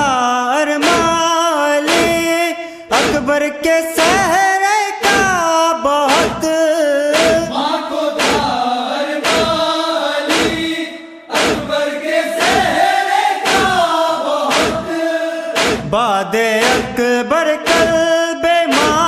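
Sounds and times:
chest-beating thumps: 0.8s - 3.3s, 4.0s - 4.4s, 5.0s - 5.5s, 6.1s - 7.6s, 8.2s - 8.6s, 9.2s - 11.8s, 12.4s - 19.0s
male voices chanting in chorus: 0.8s - 3.3s, 7.1s - 19.0s.

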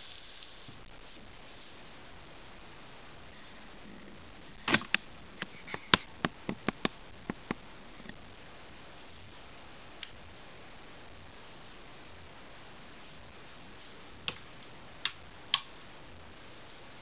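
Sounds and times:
faint steady hiss: 0.0s - 17.0s
sharp clicks and taps: 4.7s - 7.6s.

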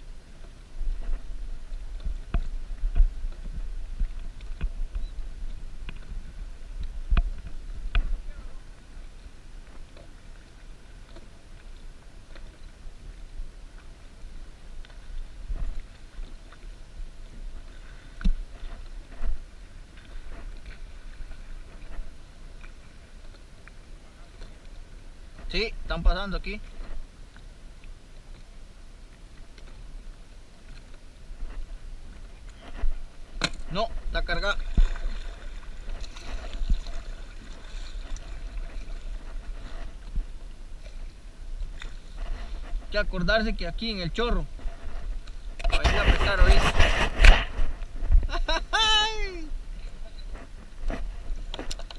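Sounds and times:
wind rumble on microphone: 0.0s - 9.9s, 12.8s - 22.6s, 31.2s - 51.9s
waves knocking against kayak hull: 0.2s - 27.1s, 29.2s - 51.9s.

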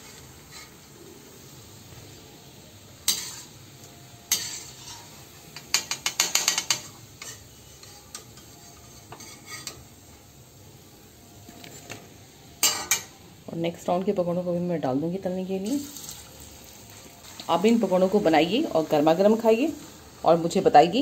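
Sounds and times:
frying oil sizzling: 0.0s - 21.0s
metal spoon clinking on pan: 5.6s - 8.5s, 12.6s - 13.2s.

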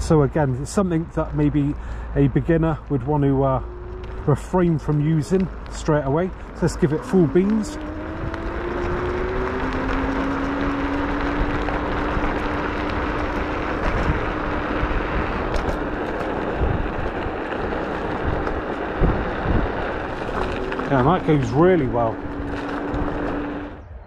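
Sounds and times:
tyre and wind noise: 0.0s - 24.0s
electric scooter motor whine: 3.2s - 5.2s, 6.8s - 24.0s.

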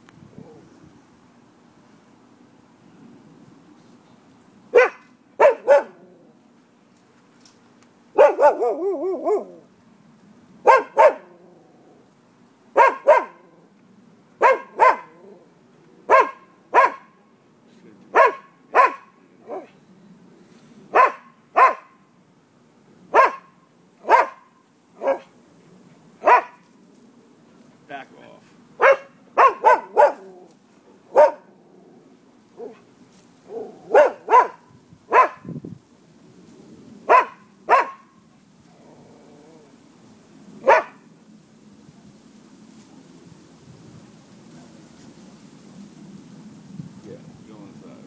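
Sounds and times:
dog barking: 4.7s - 6.0s, 8.2s - 9.6s, 10.6s - 11.3s, 12.8s - 13.5s, 14.4s - 15.2s, 16.1s - 17.2s, 18.1s - 19.7s, 20.9s - 22.0s, 23.1s - 25.3s, 26.2s - 26.6s, 28.8s - 30.3s, 31.1s - 31.5s, 33.5s - 35.5s, 37.1s - 38.1s, 40.6s - 41.0s.

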